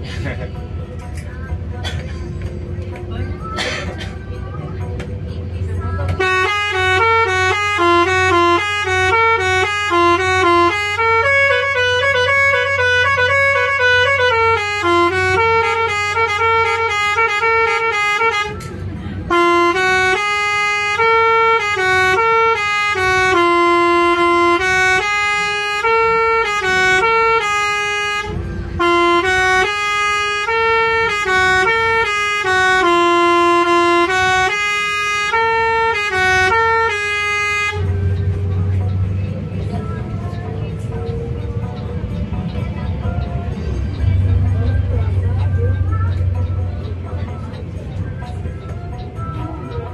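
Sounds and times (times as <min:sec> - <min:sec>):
musical air horn melody: 0:06.2 - 0:18.7, 0:19.3 - 0:40.9.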